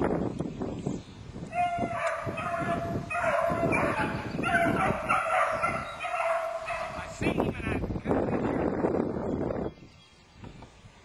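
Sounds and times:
beagles baying: 1.5 - 7.2.

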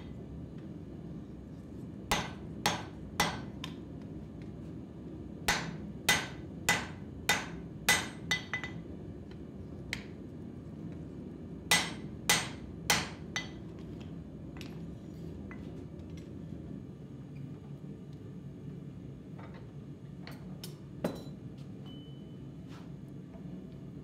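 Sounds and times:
steady low hum: 0.0 - 24.0
hammer striking steel on anvil: 2.1 - 3.8, 5.5 - 8.8, 11.7 - 13.6.

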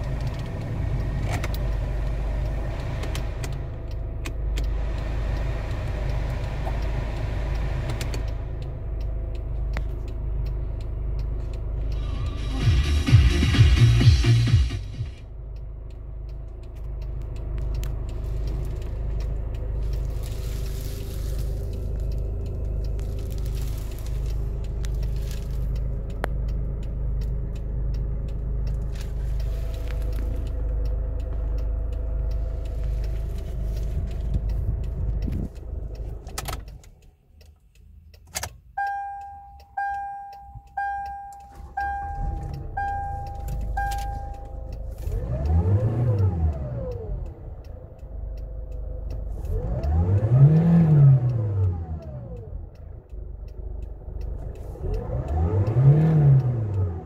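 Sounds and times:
car engine idling: 0.0 - 57.0
dashboard warning chime beeping: 38.6 - 48.9
key clicks: 38.8 - 44.5
engine revving in short blips: 38.8 - 57.0.

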